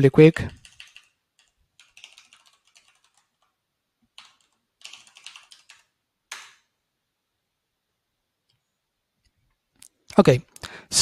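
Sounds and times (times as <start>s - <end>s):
computer keyboard typing: 0.5s - 6.6s.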